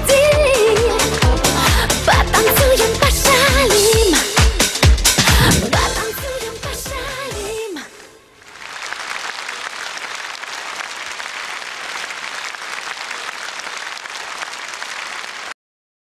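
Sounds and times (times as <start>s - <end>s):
audience applauding: 8.4s - 15.6s.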